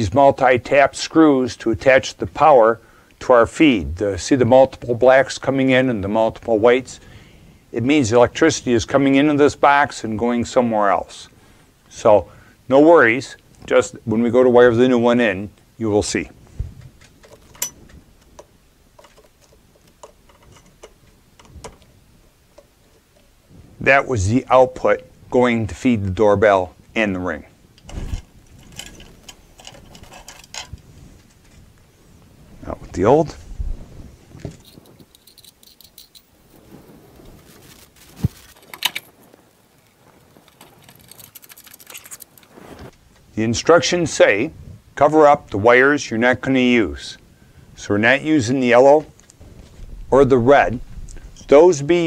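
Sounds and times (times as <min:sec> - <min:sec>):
rattling and rustling of wires: 0:15.6 - 0:23.9, 0:27.6 - 0:43.9, 0:48.9 - 0:52.0.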